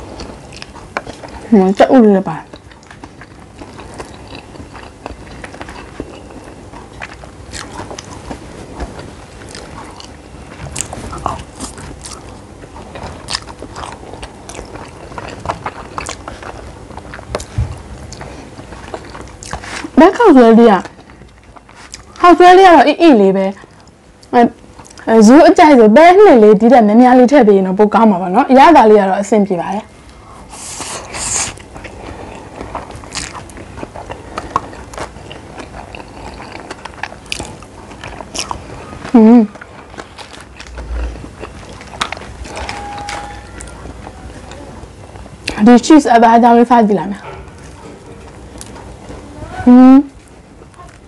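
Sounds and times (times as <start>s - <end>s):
person chewing food: 0.0s - 1.6s, 2.4s - 20.0s, 20.8s - 22.2s, 30.0s - 45.6s, 47.3s - 49.2s.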